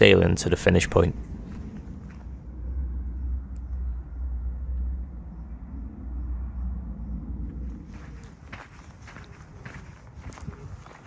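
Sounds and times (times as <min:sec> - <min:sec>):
wind buffeting microphone: 0:00.0 - 0:11.0
footsteps on dirt path: 0:07.7 - 0:11.0.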